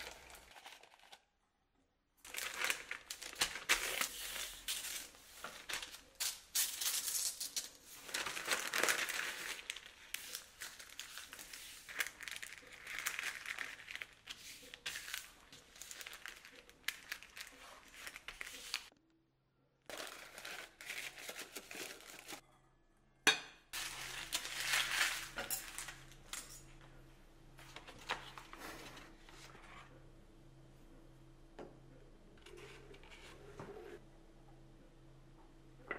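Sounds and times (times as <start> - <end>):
utensils and dishes clinking: 23.3 - 26.8.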